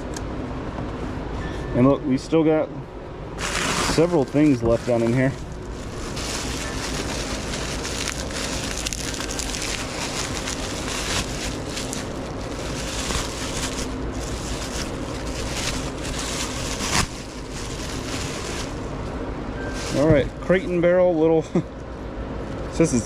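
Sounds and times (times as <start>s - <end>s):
bubble wrap crinkling: 3.4s - 19.0s.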